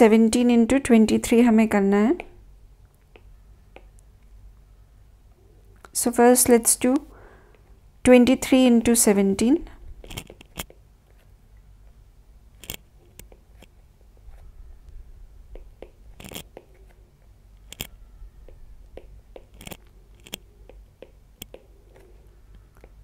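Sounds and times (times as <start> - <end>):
stylus clicking on tablet screen: 12.6 - 13.8, 15.5 - 17.0, 17.6 - 23.0.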